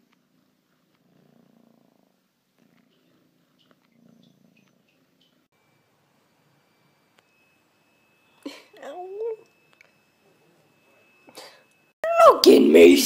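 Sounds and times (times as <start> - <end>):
cat purring: 0.0 - 5.5.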